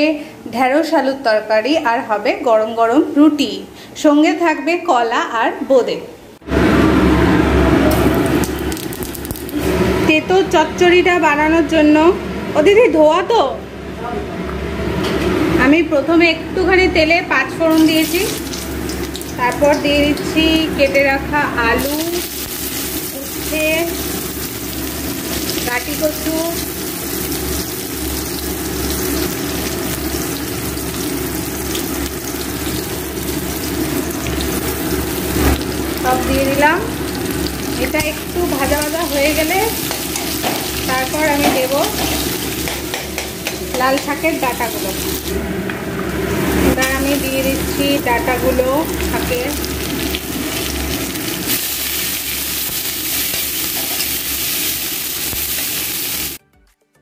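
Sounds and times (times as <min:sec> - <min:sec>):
vegetables frying in oil: 0:07.9 - 0:10.0, 0:17.5 - 0:56.4.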